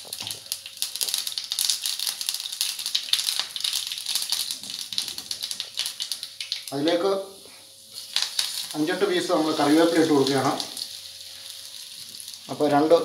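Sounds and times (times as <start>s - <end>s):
seeds sizzling and popping in oil: 0.0s - 13.0s.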